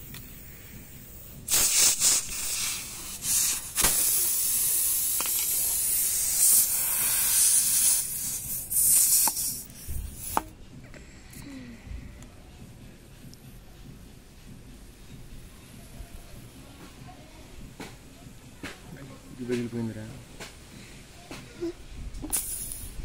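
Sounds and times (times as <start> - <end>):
air hissing from tyre: 0.0 - 10.5, 22.2 - 23.0.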